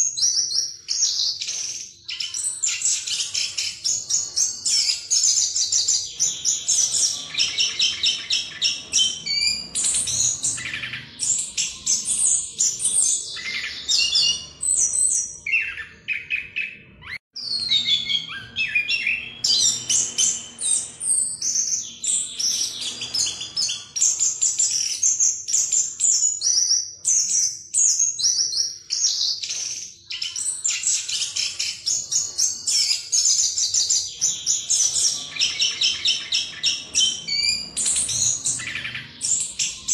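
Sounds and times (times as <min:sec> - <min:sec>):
thrush singing: 0:01.2 - 0:16.9.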